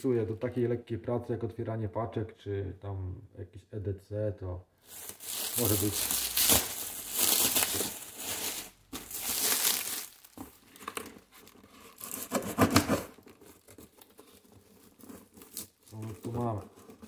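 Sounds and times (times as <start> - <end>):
packing tape and cardboard tearing: 4.9 - 17.0.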